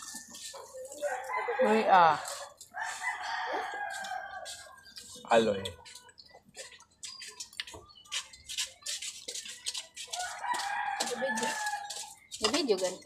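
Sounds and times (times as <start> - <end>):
rooster crowing: 1.0 - 4.6, 10.2 - 12.0.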